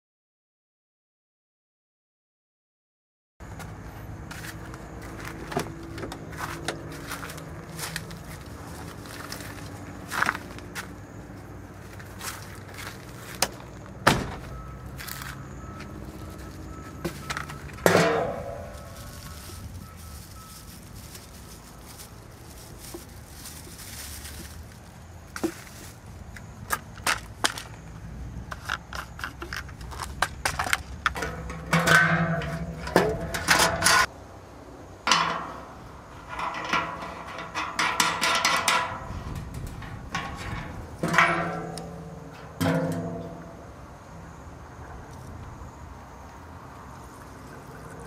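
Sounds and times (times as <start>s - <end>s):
scattered knocks and clatter: 36.2s - 43.4s.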